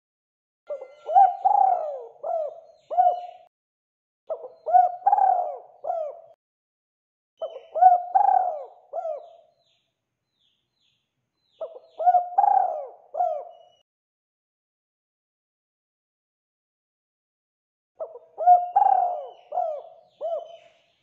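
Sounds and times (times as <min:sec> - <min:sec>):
dove cooing: 0:00.7 - 0:03.5, 0:04.3 - 0:06.4, 0:07.4 - 0:09.5, 0:11.6 - 0:13.8, 0:18.0 - 0:20.8.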